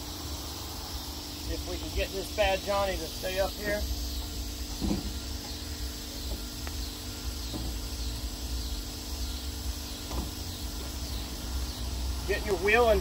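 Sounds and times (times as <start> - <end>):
insects chirring: 0.0 - 13.0
tire knocking against rack: 4.2 - 5.6, 7.4 - 7.9, 10.0 - 11.0.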